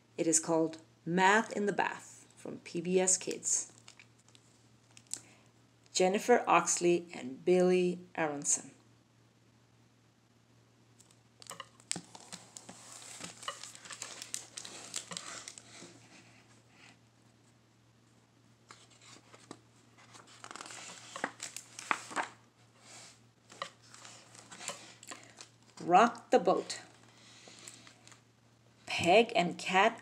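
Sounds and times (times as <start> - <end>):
pages and cover clicking: 11.0 - 16.0, 18.7 - 22.4
book pages rustling and flipping: 11.4 - 17.6, 18.6 - 28.2.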